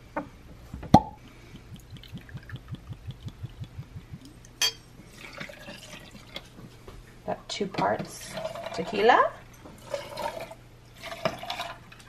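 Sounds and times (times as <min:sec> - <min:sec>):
liquid glugging from glass bottle: 0:01.0 - 0:04.4, 0:05.1 - 0:06.6.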